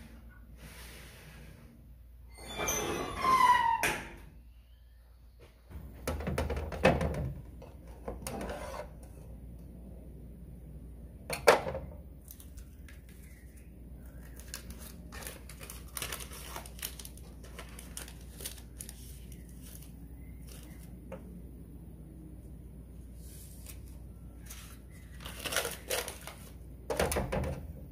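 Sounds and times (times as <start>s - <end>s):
paper baking cup rustling: 12.2s - 21.0s, 23.2s - 26.6s.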